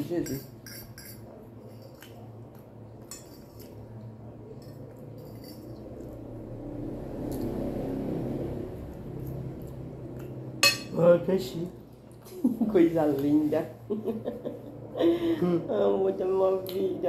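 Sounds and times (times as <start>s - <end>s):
steady low hum: 0.0s - 17.0s
fork clinking on a plate: 0.2s - 2.1s, 3.0s - 3.8s, 10.6s - 11.0s.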